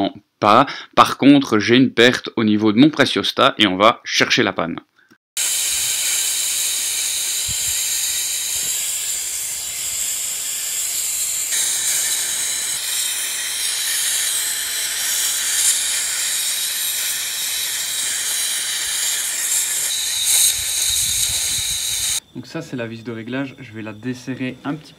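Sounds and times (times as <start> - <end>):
compressed air leaking hiss: 5.4 - 22.2.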